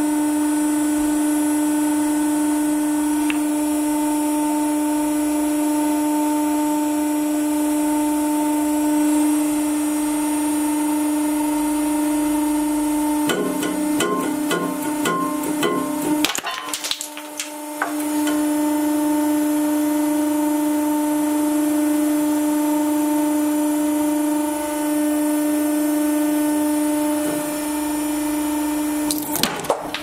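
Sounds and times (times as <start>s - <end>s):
hydraulic pump humming: 13.0s - 19.0s, 26.8s - 30.0s
ball cracking under press: 16.1s - 18.5s.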